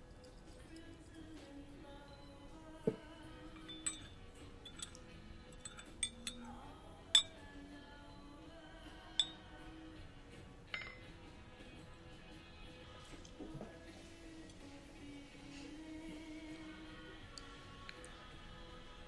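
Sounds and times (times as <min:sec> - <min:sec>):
soft background music: 0:00.0 - 0:19.0
spoon clinking in ceramic cup: 0:02.8 - 0:07.6, 0:09.1 - 0:09.6, 0:10.7 - 0:11.1
glass set down on table: 0:10.7 - 0:11.0.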